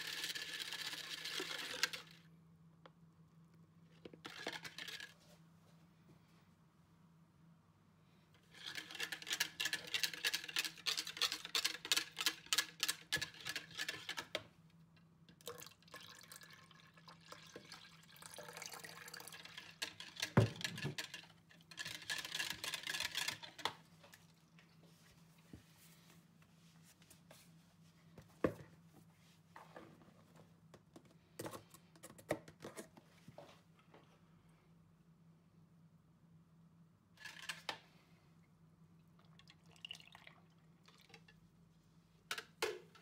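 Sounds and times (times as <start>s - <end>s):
water pouring into jug: 15.4s - 19.8s, 39.2s - 41.1s
whisk beating in plastic jug: 18.8s - 23.8s.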